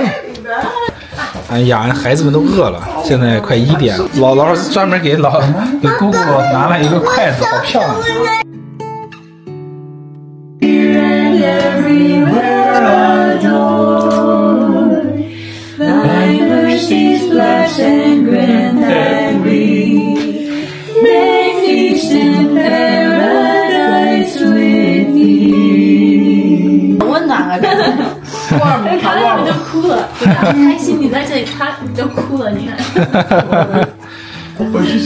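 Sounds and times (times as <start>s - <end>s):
family singing a cappella: 10.6s - 30.6s, 34.5s - 35.0s.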